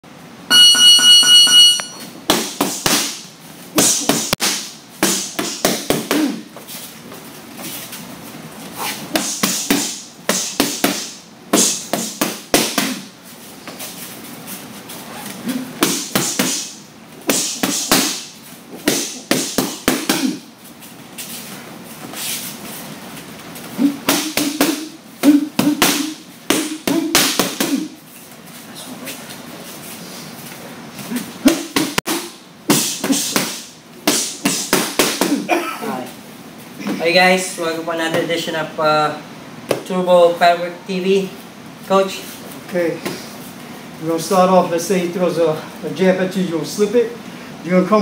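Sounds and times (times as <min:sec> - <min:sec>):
high electronic beep: 0:00.5 - 0:02.1
boxing gloves hitting focus mitts: 0:02.3 - 0:03.2, 0:03.8 - 0:06.4, 0:09.1 - 0:13.1, 0:15.8 - 0:20.5, 0:23.8 - 0:27.9, 0:31.4 - 0:35.6.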